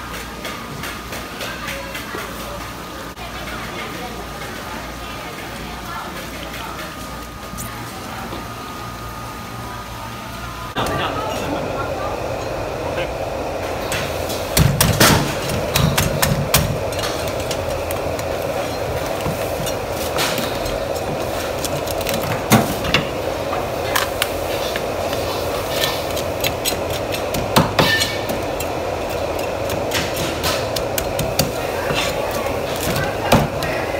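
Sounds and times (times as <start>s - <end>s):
steady hum: 7.4s - 33.9s.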